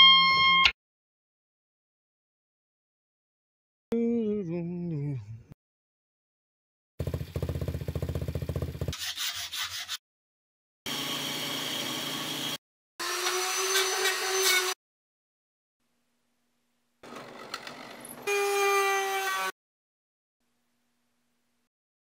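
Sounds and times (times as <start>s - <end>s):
woodworking tool whirring: 10.9s - 14.8s, 17.0s - 19.5s
woodworking tool buzzing rattle: 17.0s - 19.5s.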